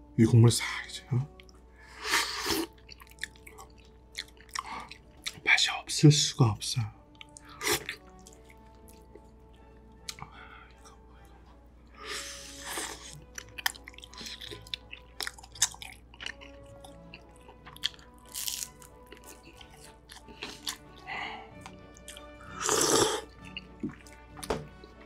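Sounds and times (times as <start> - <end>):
faint background music: 0.0 - 25.0
chewing: 1.3 - 5.4, 7.1 - 25.0
crunchy bite: 17.6 - 21.0
long noisy mouth sound: 22.6 - 23.3.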